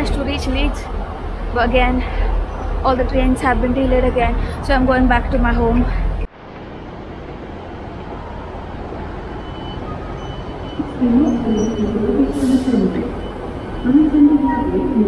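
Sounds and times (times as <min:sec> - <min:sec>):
rumble of trains and concourse: 0:00.0 - 0:15.0
wavering tone: 0:10.0 - 0:15.0.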